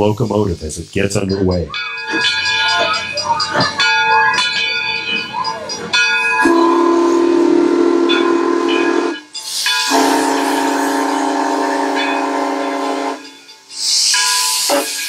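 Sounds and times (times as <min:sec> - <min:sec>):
steam hissing: 0:00.0 - 0:02.8, 0:08.8 - 0:15.0
steam whistle blasts: 0:06.4 - 0:15.0.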